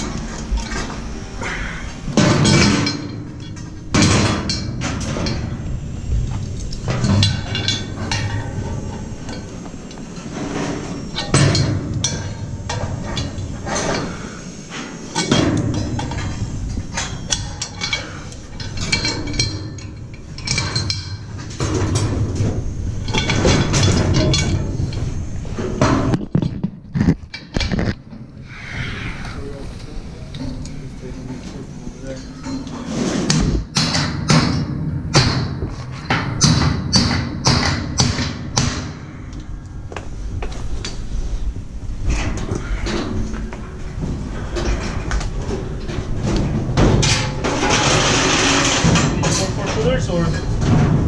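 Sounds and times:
metal scaffold clanking: 0:00.0 - 0:05.6, 0:42.1 - 0:51.0.

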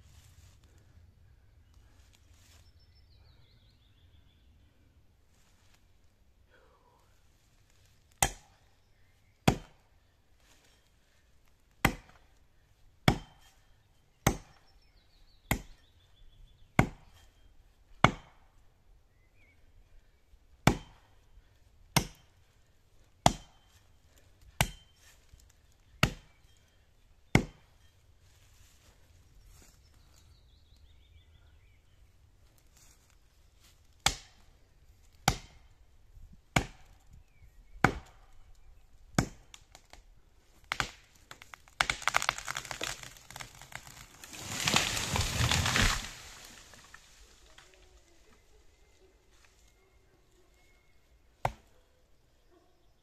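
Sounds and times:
axe chopping into tree trunk: 0:08.2 - 0:08.6, 0:09.4 - 0:09.8, 0:11.8 - 0:12.3, 0:13.0 - 0:13.6, 0:14.2 - 0:14.7, 0:15.4 - 0:15.8, 0:16.8 - 0:17.2, 0:18.0 - 0:18.4, 0:20.6 - 0:21.1, 0:22.0 - 0:22.3, 0:23.2 - 0:23.7, 0:24.6 - 0:25.3, 0:26.0 - 0:26.4, 0:27.3 - 0:27.8, 0:34.0 - 0:34.4, 0:35.2 - 0:35.6, 0:36.6 - 0:37.0, 0:37.8 - 0:38.2, 0:39.2 - 0:40.0, 0:40.7 - 0:46.7, 0:51.4 - 0:51.7.

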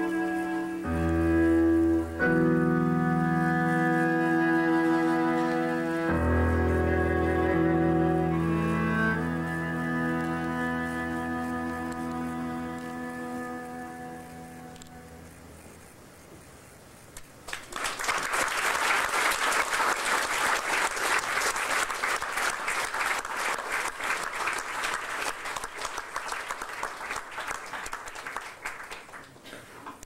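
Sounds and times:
audience applauding: 0:17.4 - 0:29.5.

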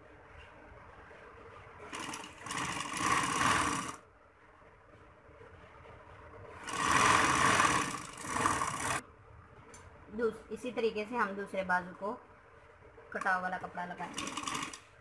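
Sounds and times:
sewing machine stitching: 0:01.8 - 0:04.0, 0:06.5 - 0:09.0, 0:14.0 - 0:15.0.

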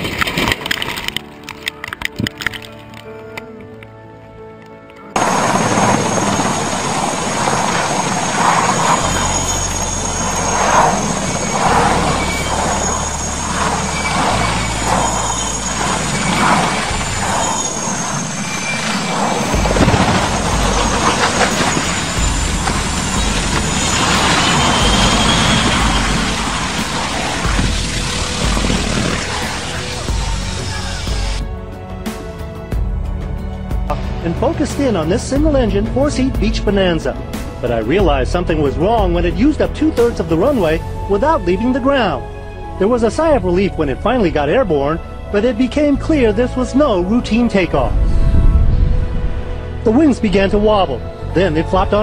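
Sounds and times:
helicopter rotor beating: 0:05.2 - 0:31.5.

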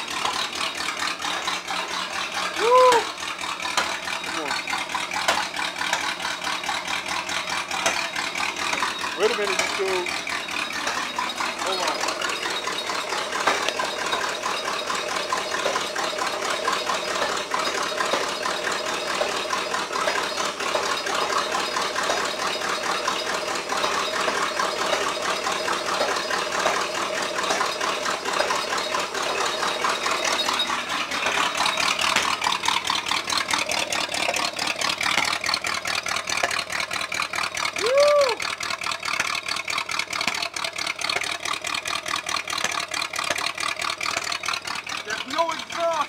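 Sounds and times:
car engine idling and spitting: 0:00.0 - 0:46.0
person talking: 0:45.0 - 0:46.0.

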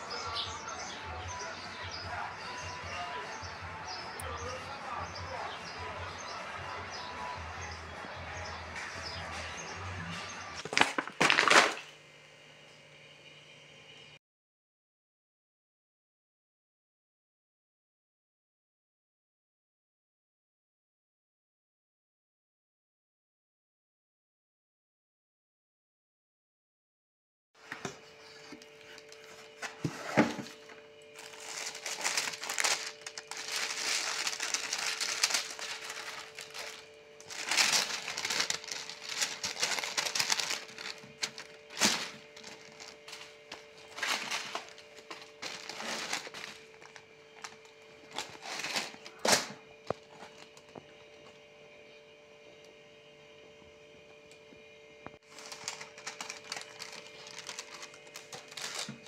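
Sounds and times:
faint hum: 0:00.0 - 0:14.2, 0:27.6 - 0:59.0
tissue paper crinkling: 0:10.6 - 0:11.8, 0:31.1 - 0:49.2, 0:55.2 - 0:59.0.

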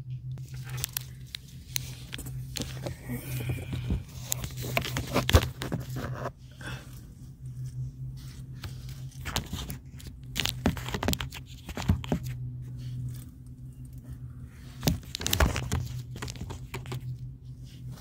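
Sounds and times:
steady low hum: 0:00.0 - 0:18.0
fingers handling phone: 0:00.4 - 0:06.3, 0:08.6 - 0:12.4, 0:14.8 - 0:17.1.

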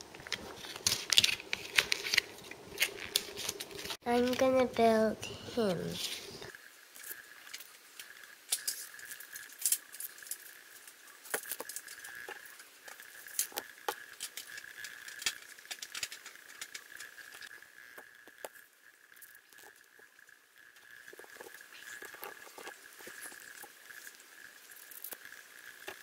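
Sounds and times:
plastic parts clicking: 0:13.4 - 0:17.4.

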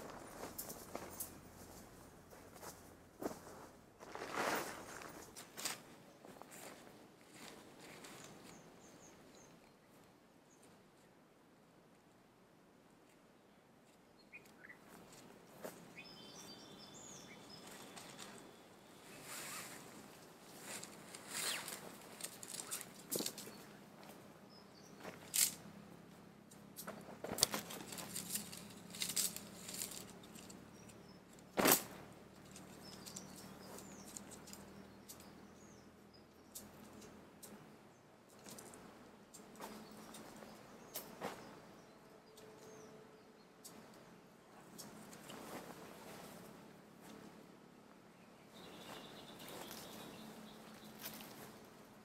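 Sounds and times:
rustling and clicking from handling: 0:00.0 - 0:02.8, 0:20.6 - 0:24.2, 0:25.0 - 0:25.7, 0:26.5 - 0:35.3, 0:38.3 - 0:41.4.

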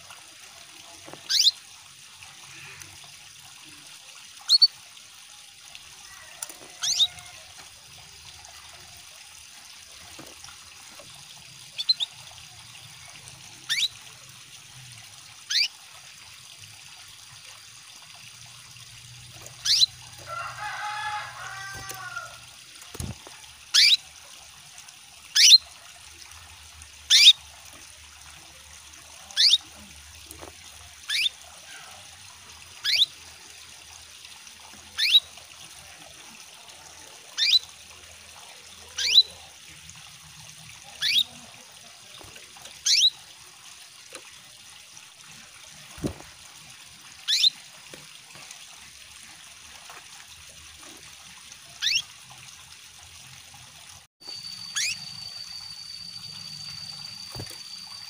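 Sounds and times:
trickle of running water: 0:00.0 - 0:58.0
canary chirping: 0:01.3 - 0:01.5, 0:04.5 - 0:04.7, 0:06.8 - 0:07.2, 0:11.8 - 0:12.2, 0:13.7 - 0:14.0, 0:15.5 - 0:15.7, 0:19.6 - 0:20.0, 0:23.7 - 0:24.0, 0:25.4 - 0:25.6, 0:27.1 - 0:27.4, 0:29.4 - 0:29.6, 0:31.1 - 0:31.3, 0:32.8 - 0:33.1, 0:35.0 - 0:35.2, 0:37.4 - 0:37.6, 0:39.0 - 0:39.3, 0:41.0 - 0:41.4, 0:42.8 - 0:43.2, 0:47.3 - 0:47.5, 0:51.8 - 0:52.1, 0:54.2 - 0:58.0.

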